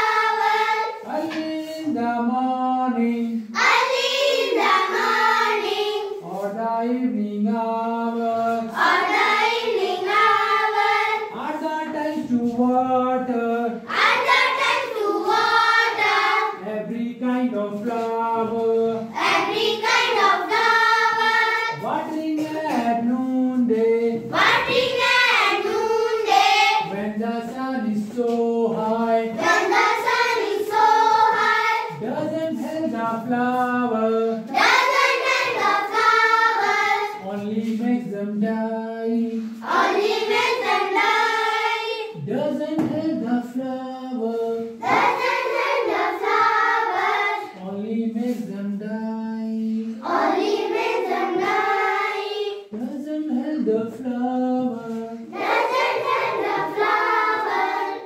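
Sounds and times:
children singing in unison: 0:00.0 - 0:01.8, 0:03.5 - 0:06.4, 0:08.1 - 0:11.6, 0:13.6 - 0:16.6, 0:17.8 - 0:22.8, 0:24.0 - 0:27.6, 0:28.8 - 0:32.1, 0:33.5 - 0:37.8, 0:39.6 - 0:42.2, 0:44.7 - 0:47.6, 0:50.0 - 0:53.4, 0:54.9 - 0:58.0.

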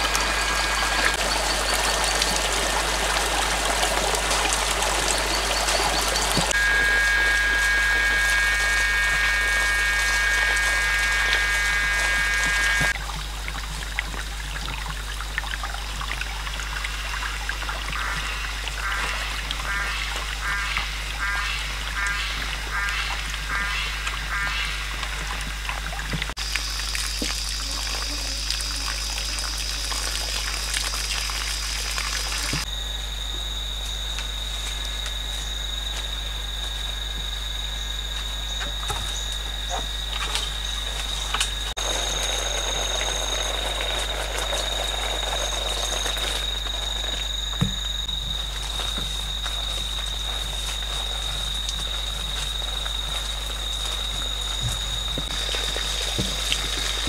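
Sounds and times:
frog croaking: 0:00.0 - 0:13.0, 0:16.6 - 0:33.6
insects buzzing: 0:00.0 - 0:13.4, 0:14.8 - 0:57.0.

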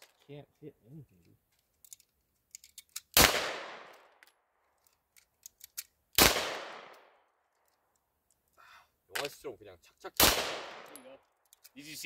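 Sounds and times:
pistol shots with echo: 0:03.2 - 0:04.0, 0:06.2 - 0:07.0, 0:10.2 - 0:11.0.

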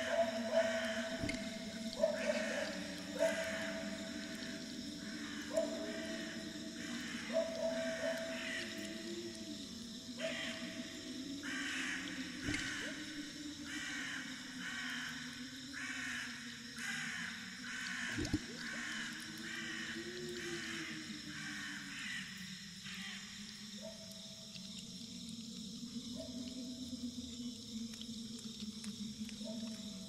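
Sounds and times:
low steady drone: 0:00.0 - 0:15.5
crow cawing: 0:08.4 - 0:08.7, 0:15.8 - 0:19.9, 0:21.4 - 0:22.2.

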